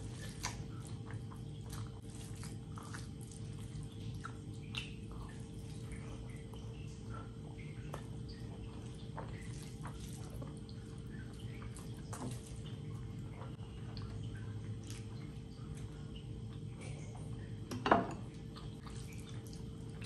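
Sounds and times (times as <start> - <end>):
fingers squishing rice: 0.0 - 6.4, 7.5 - 13.3
chewing and lip smacks: 0.0 - 17.6, 18.3 - 20.0.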